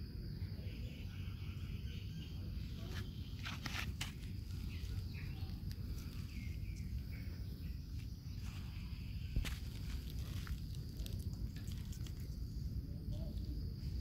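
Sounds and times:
steady low rumble: 0:00.0 - 0:14.0
faint high chirps: 0:04.3 - 0:14.0
footsteps on dry leaves: 0:09.4 - 0:12.2.

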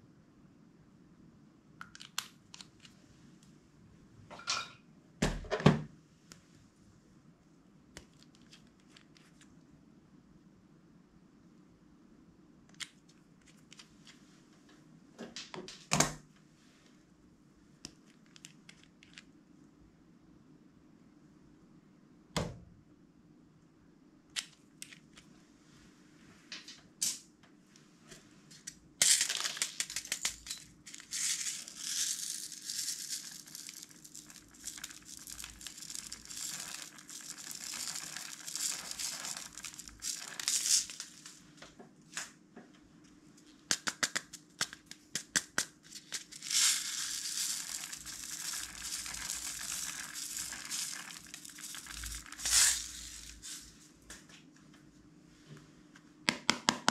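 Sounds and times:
beads pouring and rattling: 0:29.0 - 0:41.4, 0:45.9 - 0:53.8
plastic cups clicking: 0:29.1 - 0:41.3, 0:46.2 - 0:53.6.

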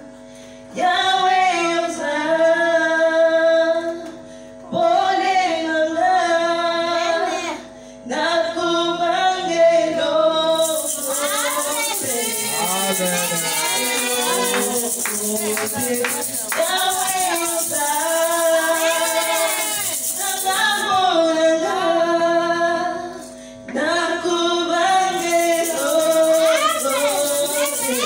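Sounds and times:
woman singing through microphone: 0:00.7 - 0:04.1, 0:04.7 - 0:28.0
gourd rattle shaken: 0:10.6 - 0:20.9, 0:25.2 - 0:28.0.

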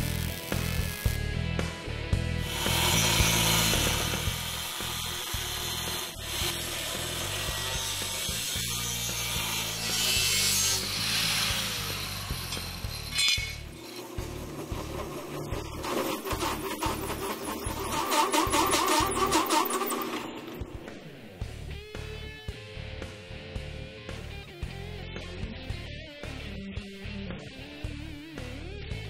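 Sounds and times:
angle grinder cutting steel: 0:00.0 - 0:01.3, 0:02.4 - 0:21.1.

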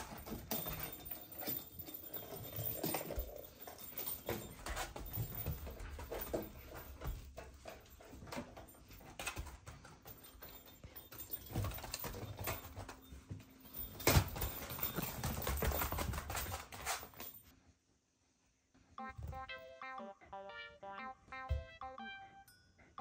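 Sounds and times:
dog paws on floor: 0:00.0 - 0:17.5.

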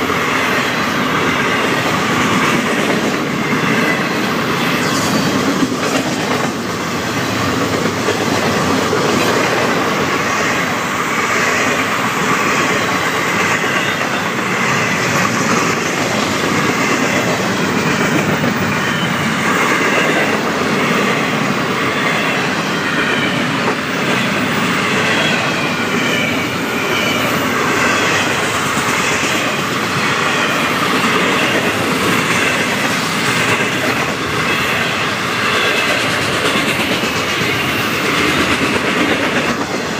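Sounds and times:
freight train wheels clattering: 0:00.0 - 0:39.9.

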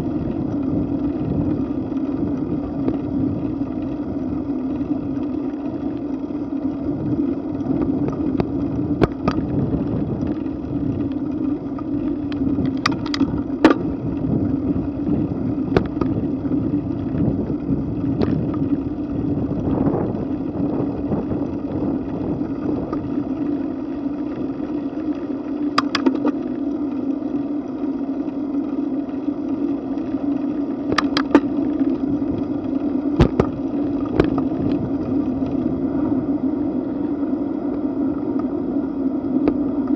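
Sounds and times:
bicycle road rumble: 0:00.0 - 0:39.9
wind noise: 0:06.8 - 0:23.4
clicks and rattles: 0:11.7 - 0:13.9, 0:25.7 - 0:26.4.

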